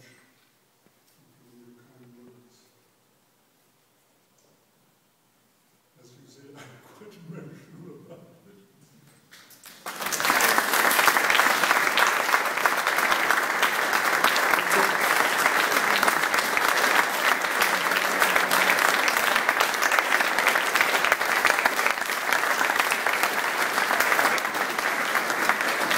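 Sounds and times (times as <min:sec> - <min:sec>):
audience applauding: 0:09.6 - 0:25.9.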